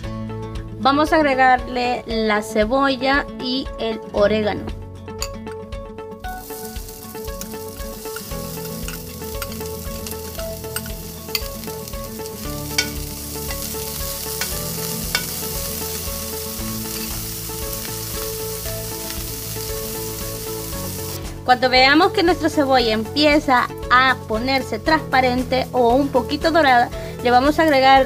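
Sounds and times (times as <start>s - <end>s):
soft background music: 0.0s - 28.0s
onion sizzling in oil: 6.2s - 22.3s
metal spoon tapping pan: 7.4s - 11.7s, 12.7s - 13.7s, 14.3s - 15.6s.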